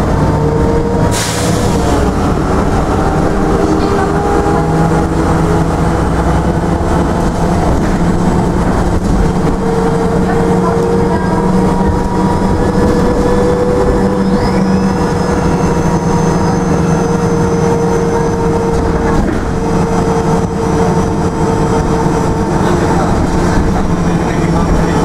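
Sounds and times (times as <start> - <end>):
bus engine drone: 0.0 - 25.0.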